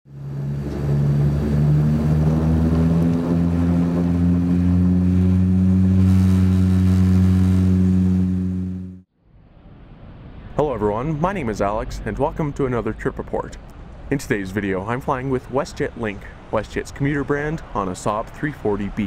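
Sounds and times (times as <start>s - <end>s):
turboprop engines droning: 0.1s - 9.1s.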